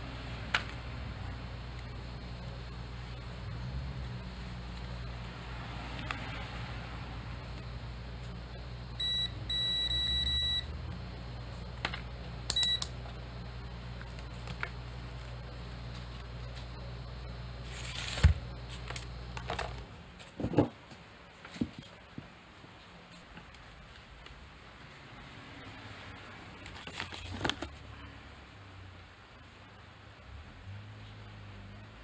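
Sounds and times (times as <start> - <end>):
low steady hum: 0.0 - 31.9
multimeter continuity beeps: 8.5 - 10.8, 12.5 - 13.0.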